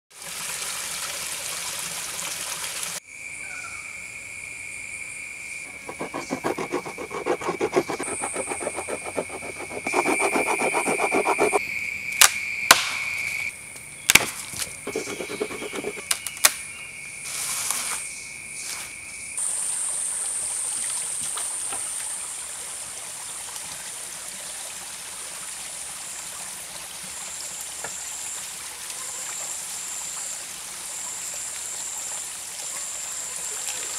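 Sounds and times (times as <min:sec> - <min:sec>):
stone tool striking wood: 0:05.7 - 0:11.6.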